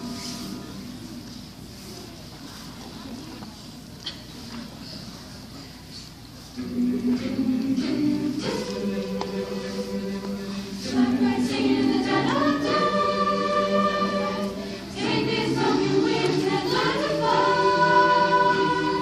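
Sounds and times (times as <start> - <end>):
choir singing long notes: 0.0 - 1.2, 6.6 - 19.0.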